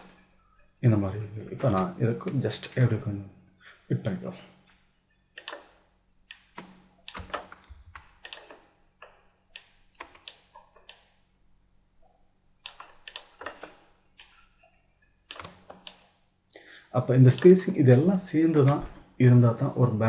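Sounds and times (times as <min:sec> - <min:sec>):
keyboard and mouse clicking: 0:04.7 - 0:11.1, 0:12.6 - 0:14.6, 0:15.2 - 0:16.1, 0:17.3 - 0:19.1.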